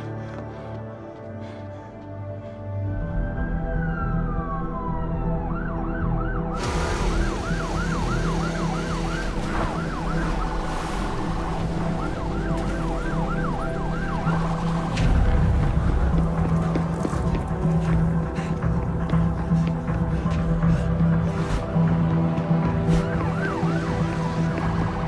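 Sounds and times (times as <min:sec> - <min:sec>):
ambulance siren yelping: 0:03.0 - 0:15.0, 0:22.6 - 0:25.0.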